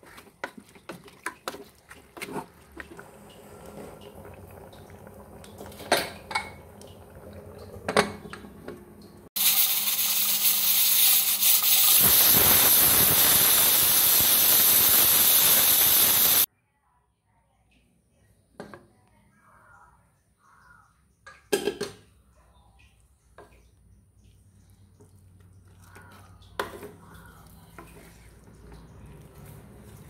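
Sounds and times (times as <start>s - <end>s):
pressure cooker steam hissing: 9.4s - 16.5s.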